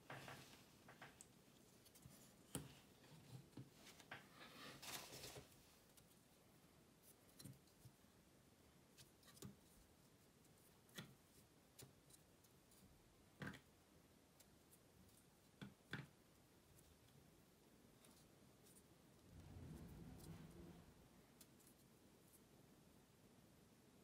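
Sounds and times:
scraping rustle: 3.1s - 5.8s.

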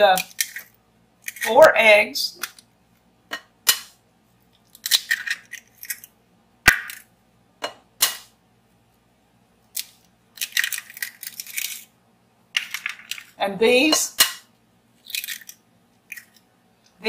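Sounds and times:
eggshell crackling: 0.0s - 1.7s, 3.7s - 7.2s, 9.6s - 13.4s, 14.9s - 16.9s.

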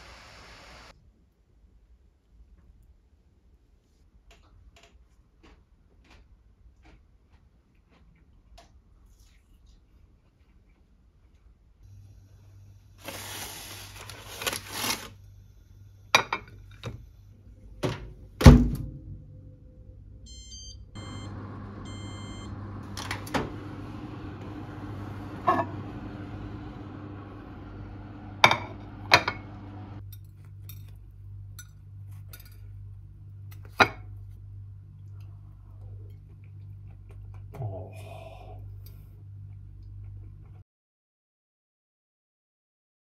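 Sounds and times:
microwave oven running hum: 11.8s - 40.6s
microwave beeps: 20.2s - 29.6s.

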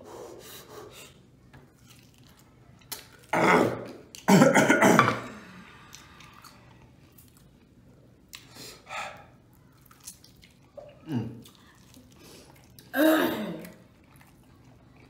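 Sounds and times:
faint chewing and mouth sounds: 0.6s - 4.3s, 5.4s - 15.0s
person coughing harshly: 3.4s - 5.3s, 13.0s - 13.7s.

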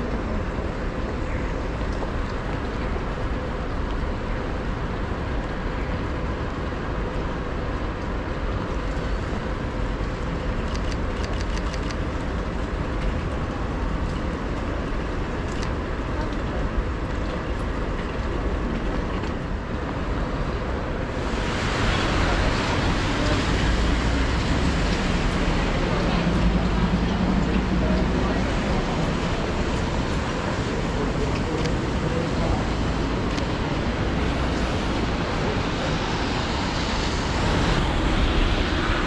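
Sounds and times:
low traffic rumble: 0.0s - 39.0s
rain hiss: 19.8s - 39.0s.

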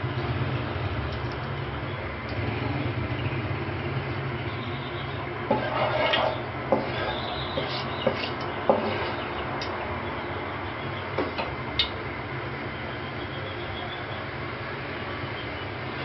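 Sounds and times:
wooden spatula scraping wok: 5.5s - 9.4s.

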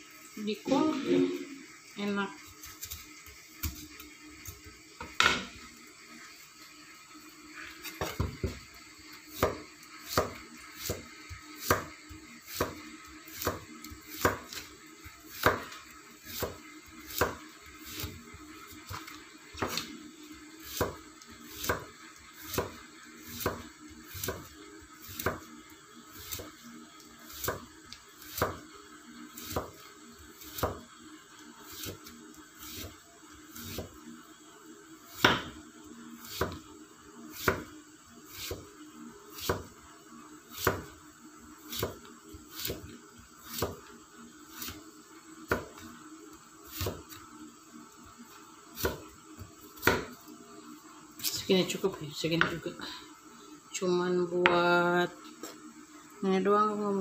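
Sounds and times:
knife chopping on a board: 9.3s - 11.9s, 12.5s - 14.6s, 15.3s - 18.2s, 19.6s - 19.9s, 20.6s - 25.5s, 26.2s - 26.5s, 27.3s - 28.6s, 29.4s - 29.8s, 30.4s - 30.8s, 31.7s - 32.9s, 33.5s - 34.0s, 35.1s - 35.6s, 36.2s - 36.6s, 37.4s - 37.7s, 38.3s - 38.7s, 39.4s - 39.7s, 40.5s - 40.9s, 41.7s - 42.9s, 43.5s - 43.8s, 45.5s - 45.8s, 46.7s - 47.2s, 48.8s - 50.2s.

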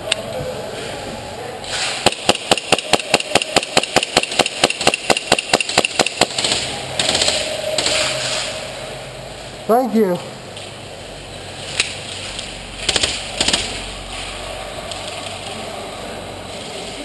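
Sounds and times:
airsoft rifle rapid fire: 2.0s - 8.0s, 12.8s - 13.9s.

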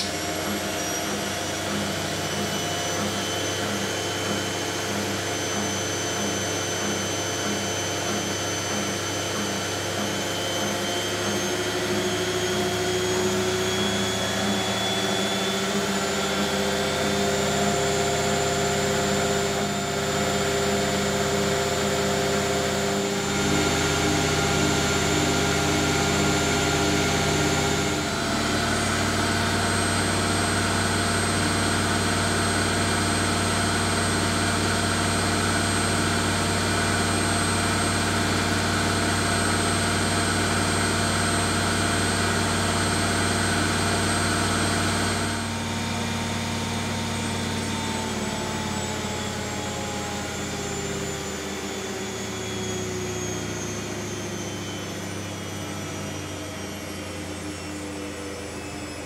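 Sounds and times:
washing machine spinning: 0.0s - 59.0s.

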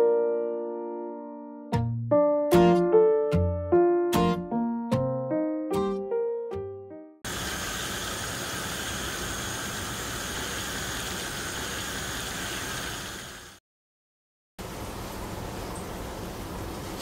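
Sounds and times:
piano jingle: 0.0s - 7.2s
water boiling in a saucepan: 7.3s - 13.6s.

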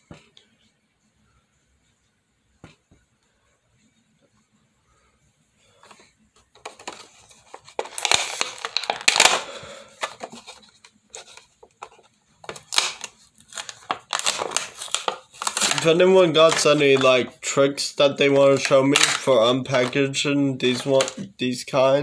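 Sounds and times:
card tearing: 6.6s - 11.5s, 12.5s - 17.4s, 18.2s - 21.3s
plastic packaging crackling: 6.6s - 21.3s.

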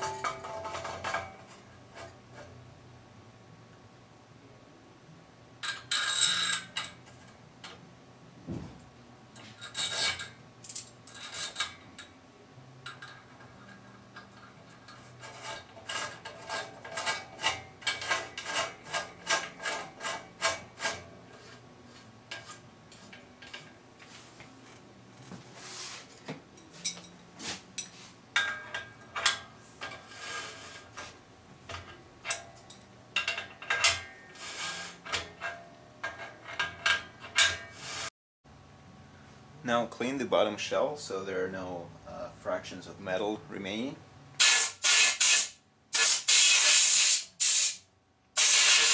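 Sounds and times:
metal scraping in rasping strokes: 9.4s - 10.4s, 13.2s - 26.2s, 28.8s - 32.5s, 33.5s - 38.1s.

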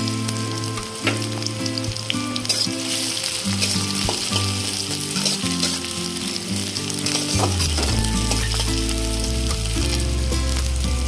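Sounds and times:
onions sizzling in oil: 0.0s - 11.0s
stirring in a metal pan: 1.1s - 9.1s.

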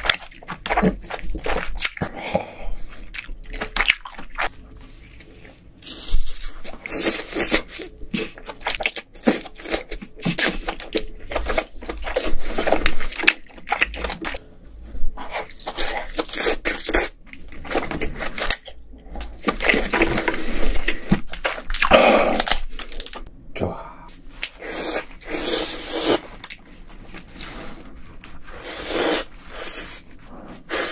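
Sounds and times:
wet chewing and smacking: 0.0s - 23.3s
crab shell crackling and tearing: 21.3s - 23.3s.

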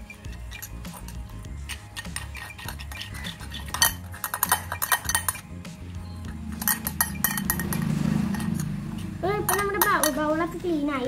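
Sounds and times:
metal spoon scraping glass bowl: 0.0s - 5.6s, 6.2s - 10.2s.

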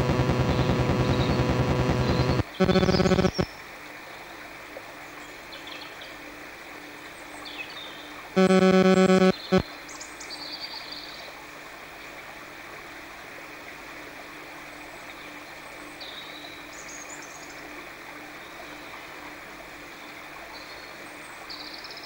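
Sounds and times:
faint low hum: 0.0s - 3.4s, 8.4s - 9.6s.

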